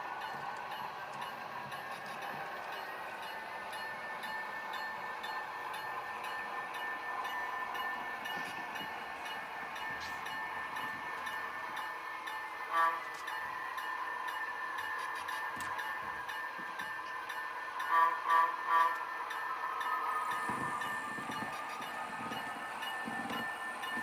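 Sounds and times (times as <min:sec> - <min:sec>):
model train engine whine: 0:00.0 - 0:24.0
model train toot: 0:12.7 - 0:13.2, 0:17.8 - 0:19.2.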